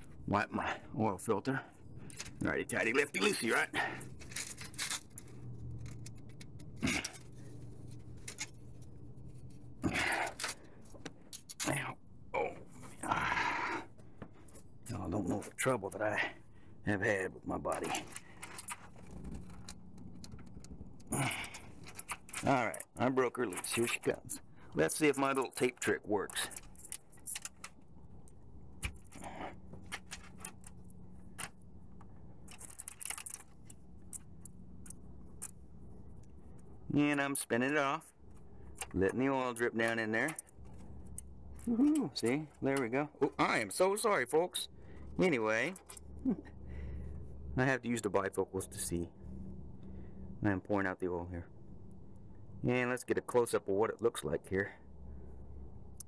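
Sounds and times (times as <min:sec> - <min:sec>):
faint steady hum: 0:00.0 - 0:56.0
tool clicking and rattling: 0:28.8 - 0:35.6.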